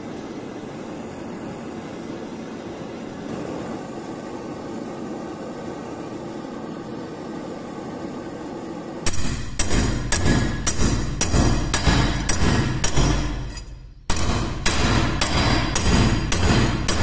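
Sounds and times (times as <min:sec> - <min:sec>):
gas blowtorch hissing: 0:00.0 - 0:13.6
sharp hammer blows: 0:09.0 - 0:17.0.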